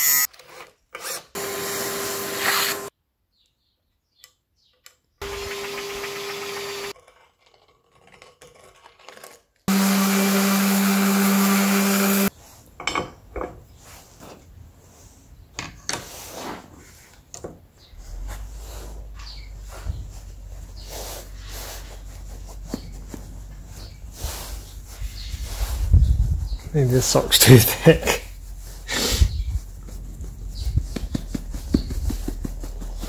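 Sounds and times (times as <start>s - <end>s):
cordless drill whirring into steel: 0.0s - 2.9s.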